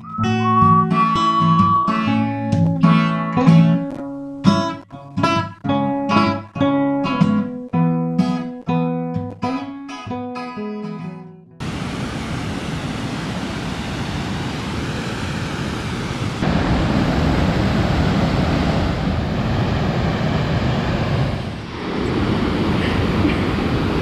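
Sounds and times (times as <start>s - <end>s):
rushing waterfall: 11.6s - 24.0s.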